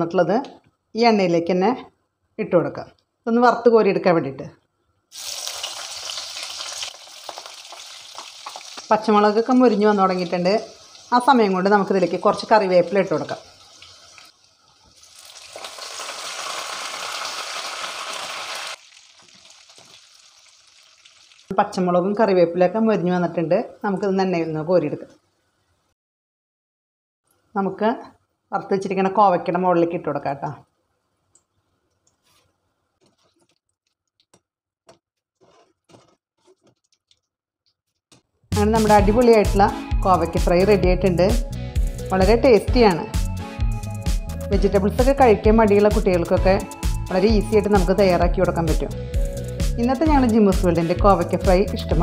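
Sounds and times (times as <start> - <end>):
leaves and chillies sizzling in oil: 5.1 - 21.5.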